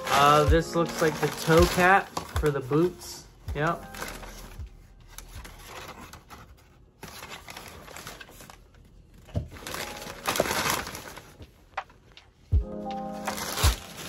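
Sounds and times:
packing paper crinkling: 0.0s - 14.0s.

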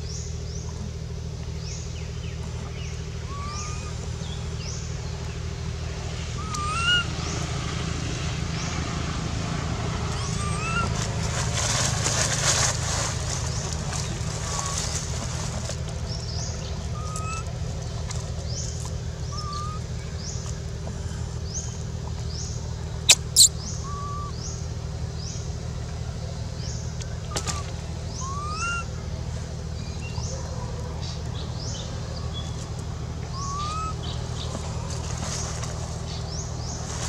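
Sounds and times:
steady low hum: 0.0s - 37.0s
lower rising bird call: 3.2s - 4.8s, 6.4s - 7.1s, 19.2s - 20.3s, 23.1s - 24.6s, 27.3s - 29.0s, 33.3s - 34.5s
high rising bird chirps: 23.1s - 24.4s.

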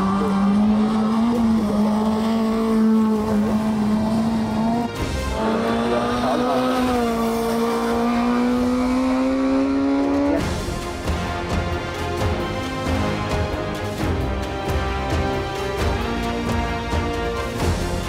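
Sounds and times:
race car engine at high revs: 0.0s - 14.1s.

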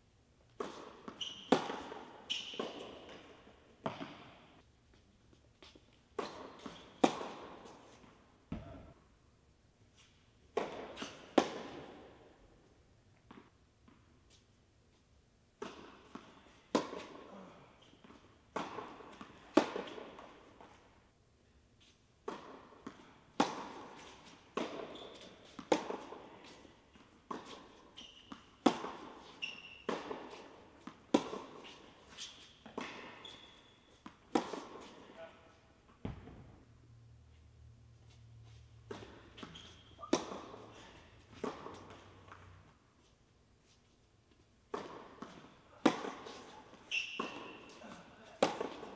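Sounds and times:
racket hitting tennis ball: 0.6s - 4.4s, 6.1s - 9.0s, 10.5s - 12.2s, 15.6s - 20.8s, 22.2s - 35.2s, 38.5s - 42.6s, 44.7s - 48.9s
tennis ball bouncing: 0.6s - 4.4s, 6.2s - 7.7s, 8.5s - 8.9s, 10.5s - 12.1s, 15.6s - 17.2s, 18.0s - 20.8s, 22.2s - 35.0s, 35.9s - 36.6s, 38.8s - 42.6s, 44.7s - 48.9s.

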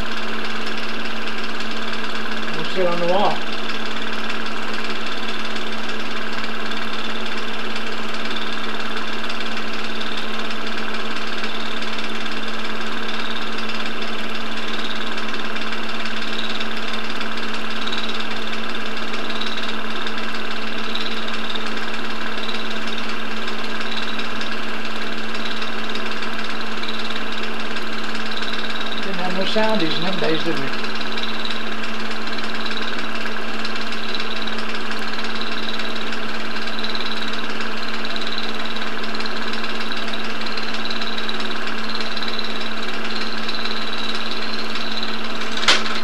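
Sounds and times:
film projector running: 0.0s - 46.0s.

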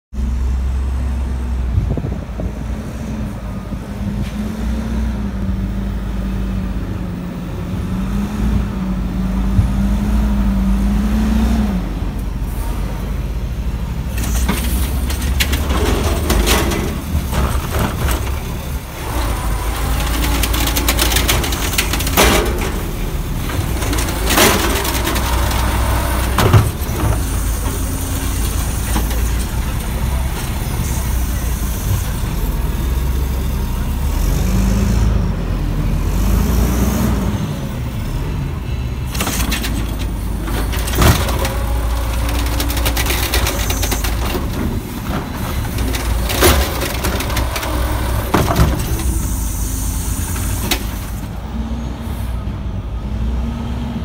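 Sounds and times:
garbage truck engine rumbling: 0.1s - 54.0s
clanks and clatter from truck: 14.0s - 32.5s, 39.0s - 51.4s.

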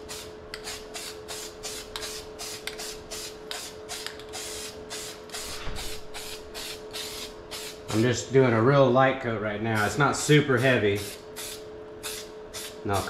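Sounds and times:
spray can hissing in bursts: 0.0s - 7.9s, 11.0s - 12.8s.

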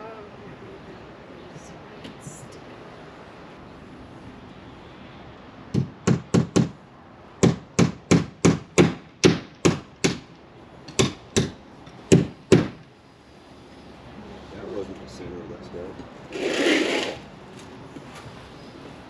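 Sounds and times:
hammer driving nails into wood: 5.7s - 6.8s, 7.4s - 10.3s, 10.9s - 12.9s.

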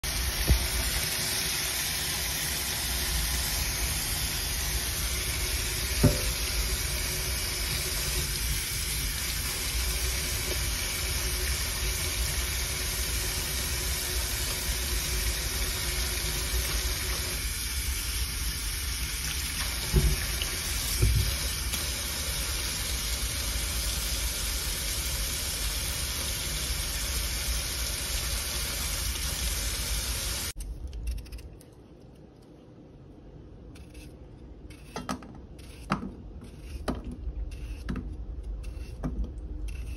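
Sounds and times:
tap running into steel sink: 5.9s - 6.6s, 19.8s - 21.8s.

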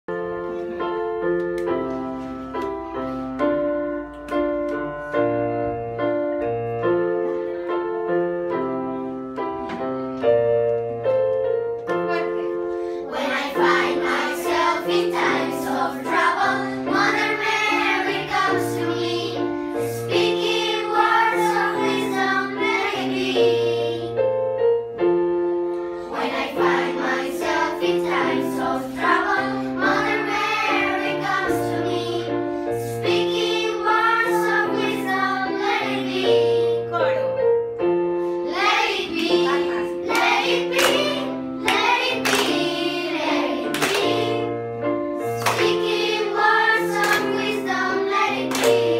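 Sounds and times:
children singing: 13.1s - 24.2s, 26.1s - 36.8s, 38.5s - 44.6s, 45.4s - 48.9s.

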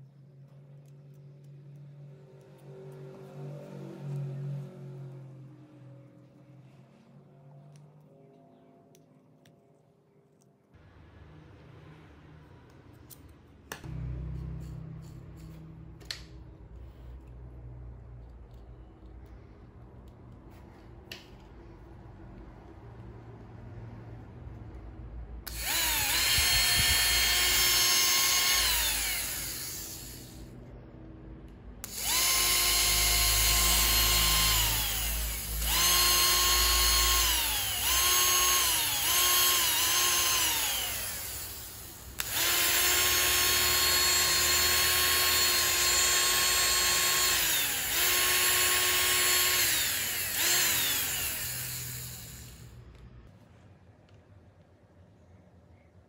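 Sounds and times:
electric motor whining: 25.5s - 30.4s, 31.8s - 52.7s.

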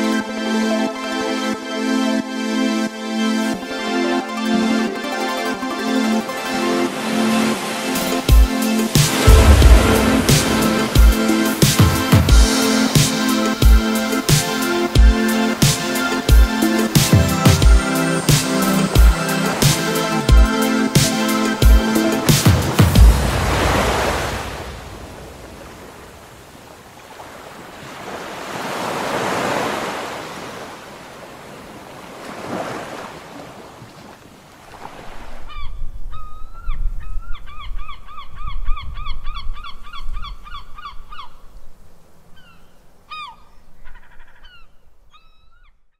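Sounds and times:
surf breaking on beach: 6.7s - 13.5s, 21.0s - 35.4s
low rumble of wind and sea: 8.9s - 12.6s, 21.7s - 45.1s.

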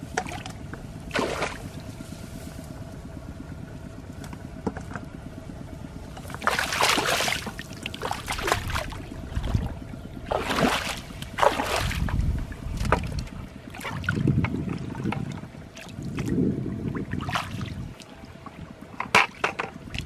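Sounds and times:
hands splashing in muddy water: 6.3s - 9.7s, 10.3s - 13.2s.

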